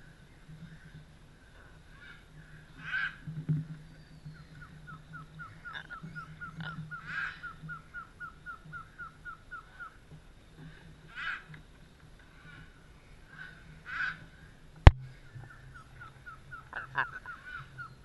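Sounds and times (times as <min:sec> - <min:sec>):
macaws squawking: 0:04.6 - 0:10.0, 0:11.1 - 0:11.6, 0:13.4 - 0:14.2, 0:15.4 - 0:18.0.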